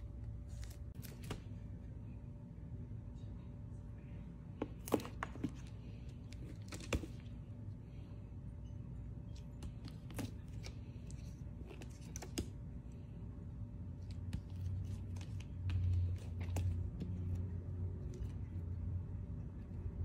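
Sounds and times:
low steady hum: 0.0s - 20.0s
books being handled: 0.3s - 1.6s, 4.6s - 7.4s, 9.2s - 12.7s, 14.0s - 18.7s.

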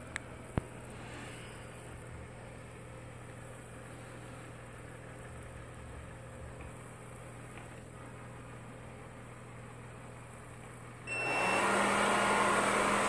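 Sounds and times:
robot vacuum humming: 11.1s - 13.0s.

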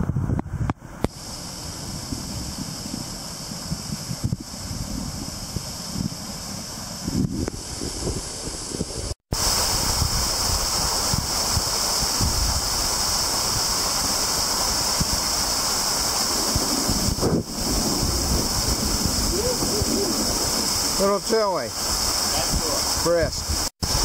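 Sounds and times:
wind buffeting microphone: 0.0s - 24.0s
waterfall splashing onto lake: 8.5s - 24.0s.

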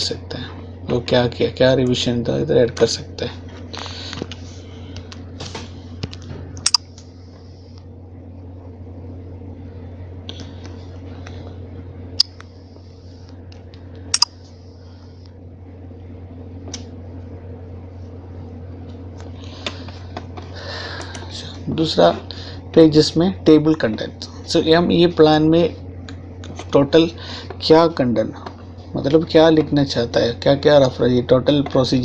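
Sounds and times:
steady low hum: 0.0s - 32.0s
computer clicks: 6.6s - 6.8s, 14.1s - 14.3s.

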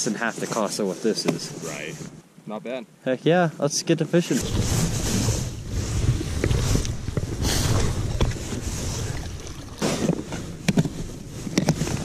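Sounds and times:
wind rumbling on microphone: 4.4s - 12.0s
plastic case rustle and clatter: 6.0s - 12.0s.

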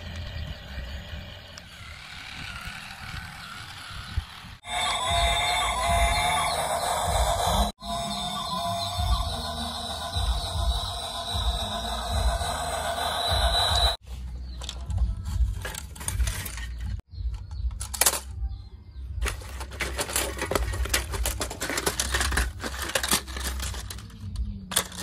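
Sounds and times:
background music: 4.7s - 14.0s
plastic toy pieces clacking: 15.5s - 18.4s, 19.2s - 25.0s.

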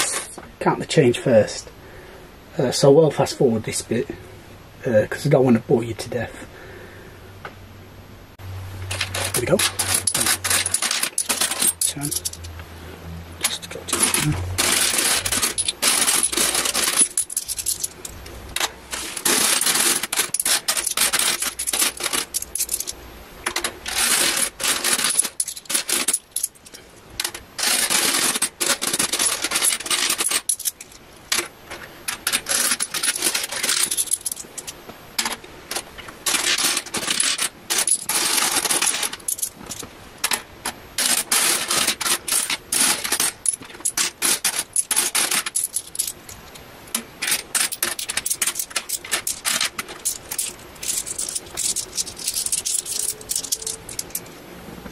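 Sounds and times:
coins clinking: 8.8s - 12.6s, 13.4s - 31.5s, 32.1s - 46.4s, 47.2s - 54.3s.

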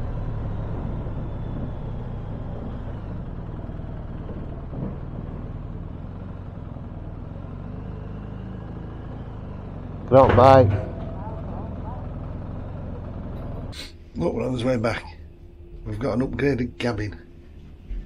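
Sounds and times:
motorcycle engine at low speed: 0.0s - 18.0s
clunk on ramp: 10.1s - 11.5s.

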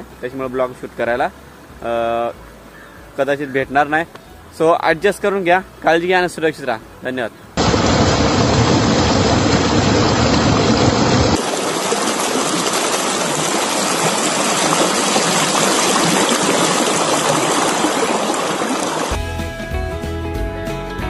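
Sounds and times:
music: 0.0s - 7.5s, 19.1s - 21.0s
deep rumble: 7.6s - 11.4s
heavy rain and water rushing: 7.6s - 19.2s.

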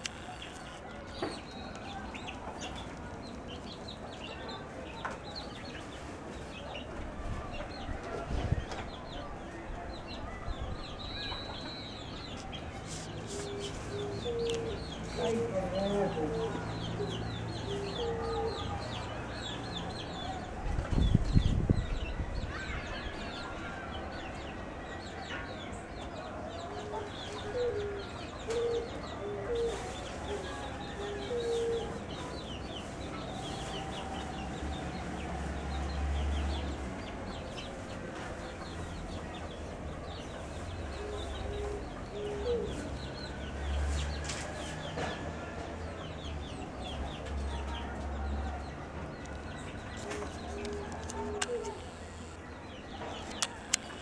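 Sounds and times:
chicks chirping and peeping: 0.1s - 54.0s
chickens clucking: 26.6s - 34.3s.

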